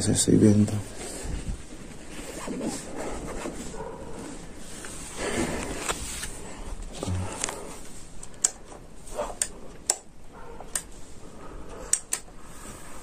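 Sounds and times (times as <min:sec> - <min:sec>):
light switch clicks: 0:09.4 - 0:10.1, 0:11.9 - 0:12.3.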